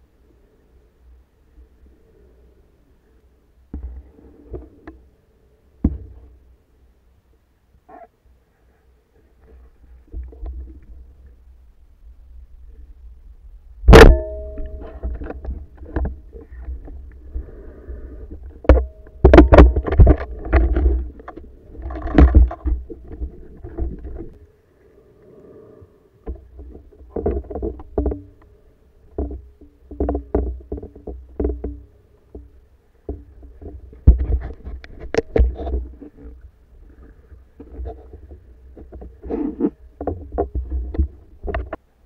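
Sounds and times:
low rumble of moving water: 0.0s - 42.0s
underwater knocks and scrapes: 3.7s - 5.0s, 9.3s - 11.4s, 13.9s - 24.4s, 26.2s - 41.8s.

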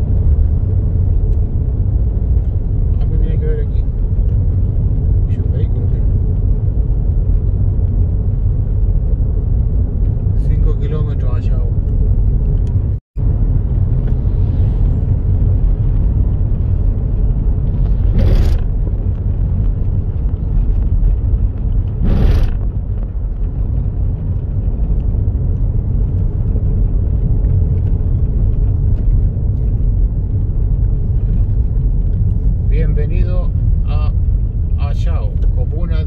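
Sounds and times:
car road rumble from inside: 0.0s - 36.0s
brief whooshing swells: 22.0s - 22.7s.

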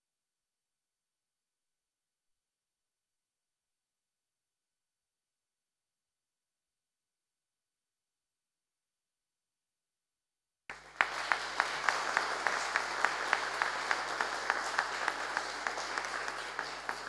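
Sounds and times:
close hands clapping rhythmically: 10.7s - 17.0s
crowd applauding: 10.7s - 17.0s.

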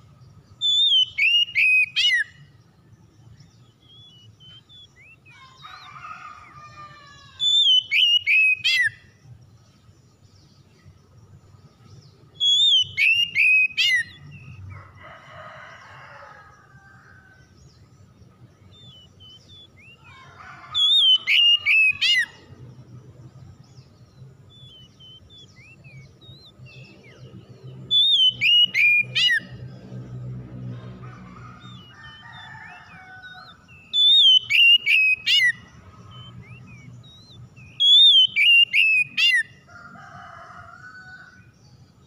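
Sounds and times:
bird whistled song phrases: 0.6s - 2.3s, 7.4s - 9.0s, 12.4s - 14.6s, 20.7s - 22.4s, 27.9s - 29.5s, 33.7s - 39.5s.

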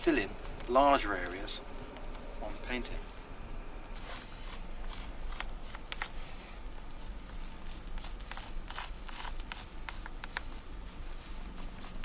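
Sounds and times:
pigment scratching on rock: 4.1s - 6.3s, 7.0s - 12.0s.

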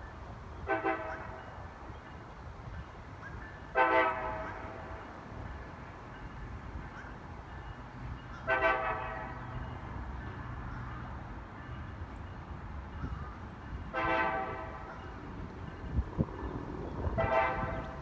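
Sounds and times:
low train rumble: 0.0s - 18.0s
locomotive air horn blasts: 0.6s - 1.6s, 3.7s - 5.0s, 8.4s - 9.6s, 13.8s - 15.1s, 17.0s - 18.0s.

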